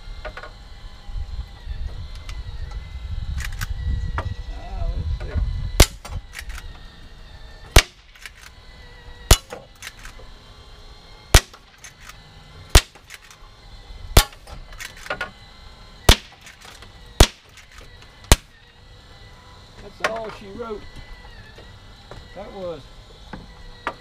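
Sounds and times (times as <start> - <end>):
air rifle shots: 5.8 - 6.6, 7.7 - 8.5, 9.3 - 10.2, 11.3 - 13.3, 14.1 - 15.1, 16.1 - 18.6.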